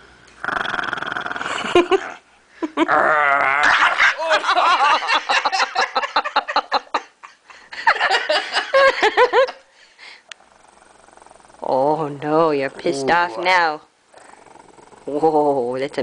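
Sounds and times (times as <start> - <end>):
dog growling and snarling: 0.4 - 2.2, 10.4 - 15.6.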